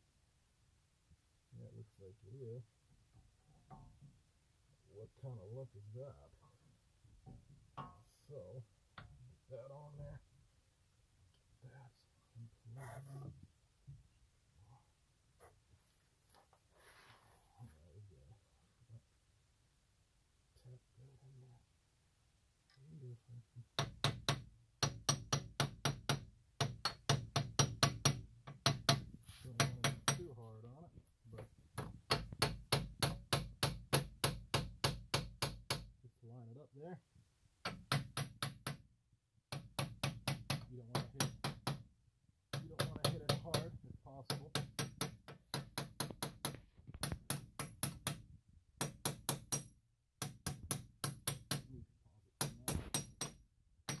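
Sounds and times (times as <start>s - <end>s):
sharp metallic taps: 23.8s - 30.3s, 31.4s - 35.9s, 37.6s - 38.8s, 39.5s - 41.9s, 42.5s - 51.7s, 52.4s - 54.0s.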